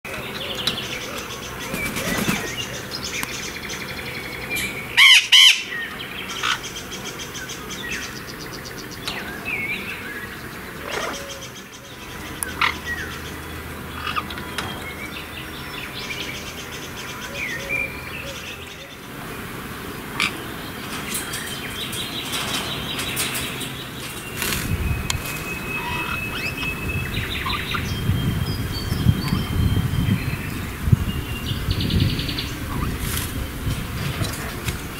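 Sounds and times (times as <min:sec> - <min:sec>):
macaws squawking: 0:04.9 - 0:06.7, 0:10.7 - 0:11.6, 0:20.0 - 0:21.4, 0:25.2 - 0:27.8.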